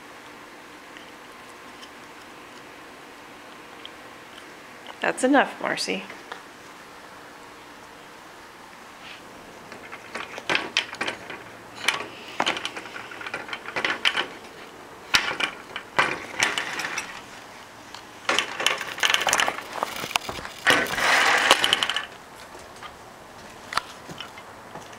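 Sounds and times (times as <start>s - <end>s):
crackling clicks and rustling: 9.7s - 24.9s.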